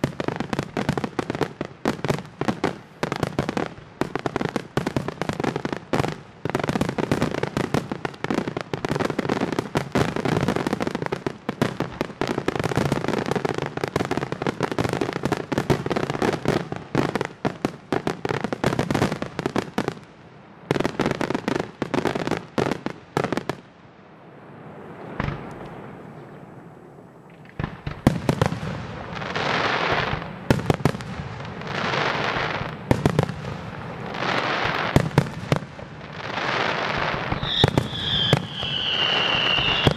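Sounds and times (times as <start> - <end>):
hissing crackle: 36.2 - 39.9
firework shells bursting: 37.2 - 39.9.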